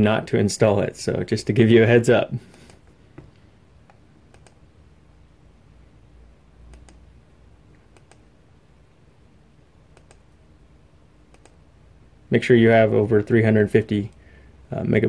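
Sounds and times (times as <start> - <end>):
low steady hum: 0.0 - 15.0
computer mouse clicks: 3.8 - 4.6, 6.7 - 7.1, 7.7 - 8.3, 9.9 - 10.4, 11.3 - 11.6.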